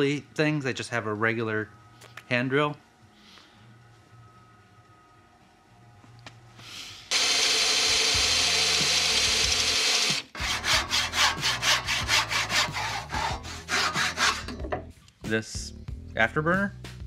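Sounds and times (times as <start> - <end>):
electric drill boring into wood: 7.1 - 10.4
hand saw cutting wood: 7.1 - 14.6.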